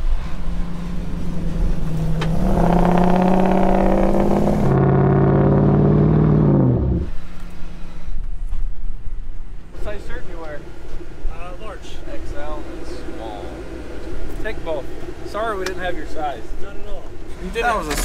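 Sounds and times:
off-road vehicle engine revving: 0.0s - 7.9s, 9.8s - 18.0s.

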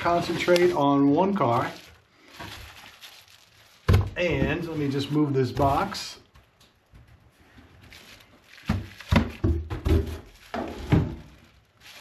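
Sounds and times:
box knocking and scraping on workbench: 8.7s - 11.3s.

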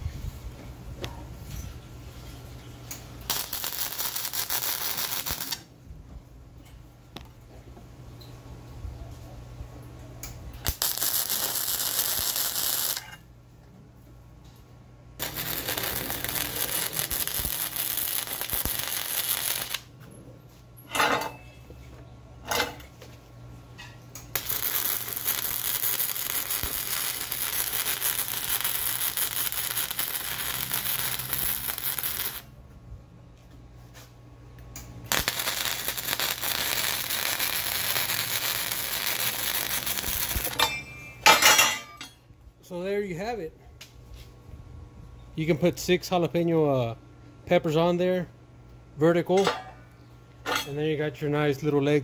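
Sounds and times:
welding arc crackling sizzle: 2.9s - 5.7s, 10.6s - 13.2s, 15.2s - 19.9s, 24.2s - 32.6s, 35.0s - 40.8s.

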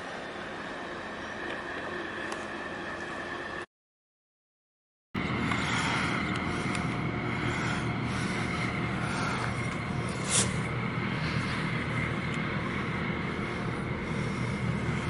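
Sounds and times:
faint steady whine: 0.0s - 3.7s, 5.2s - 15.0s
ship engines rumbling: 5.2s - 15.0s.

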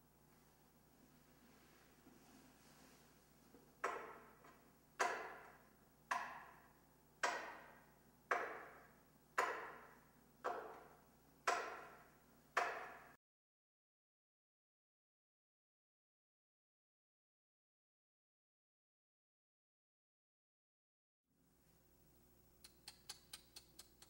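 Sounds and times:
sharp knocks with ringing echo: 3.8s - 4.4s, 5.0s - 13.2s.

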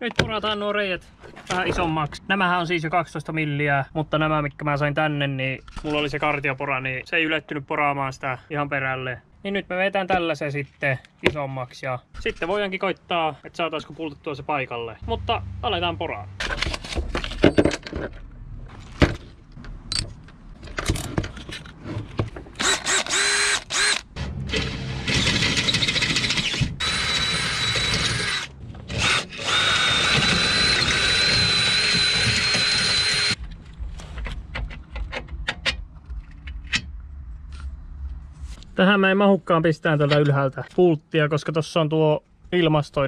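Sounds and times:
drill whining through metal: 22.6s - 33.4s.

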